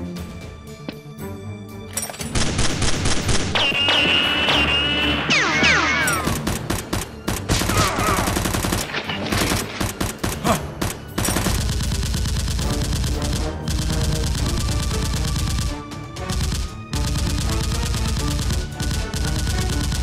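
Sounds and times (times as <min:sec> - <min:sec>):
background music: 0:00.0 - 0:20.0
automatic gunfire bursts: 0:11.1 - 0:20.0.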